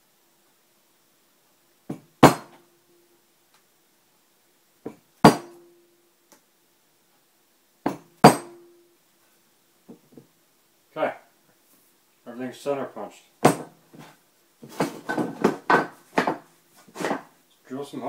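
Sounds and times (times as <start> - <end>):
mallet striking steel punch: 2.2 - 2.6, 5.2 - 5.7, 7.9 - 8.7.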